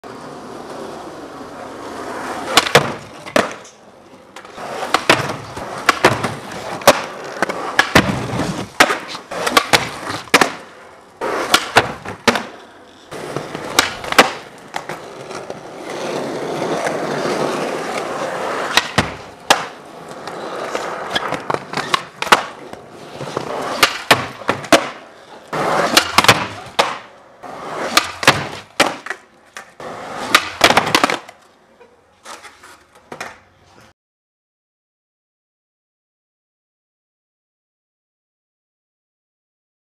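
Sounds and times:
skateboard wheels rolling: 0.0 - 33.9
skateboard pops and clacks: 2.4 - 31.5, 32.3 - 33.5.

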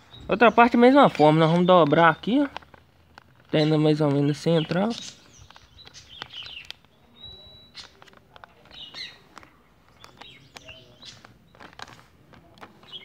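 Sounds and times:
birds chirping: 0.0 - 13.0
paper being folded and creased: 7.8 - 13.0.

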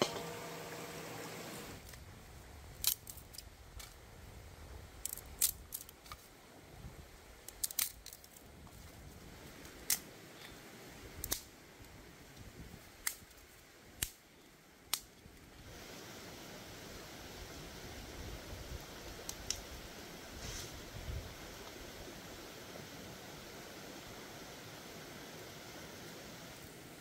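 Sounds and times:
faint steady hiss: 0.0 - 27.0
sharp clicks and snips: 2.8 - 4.0, 7.4 - 8.4, 9.7 - 10.1, 11.2 - 11.5, 13.0 - 13.4, 14.0 - 14.2, 14.9 - 15.2, 19.2 - 19.7.

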